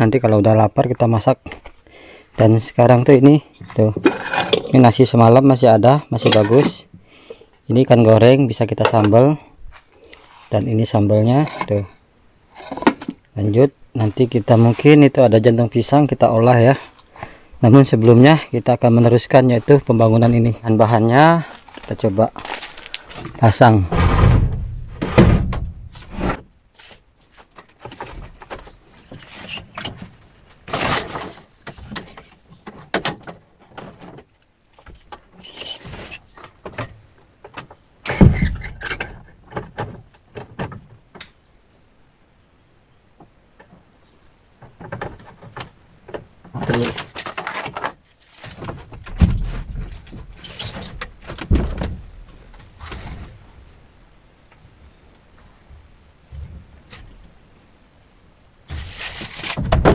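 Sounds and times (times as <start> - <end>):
heavy thumps: 23.1 - 26.5
building materials knocking and rattling: 59.4 - 59.9.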